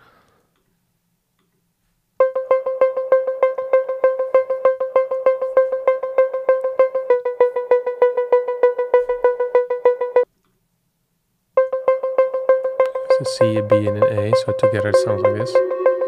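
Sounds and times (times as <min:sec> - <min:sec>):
plucked synthesizer notes: 0:02.2 - 0:10.2, 0:11.6 - 0:16.0.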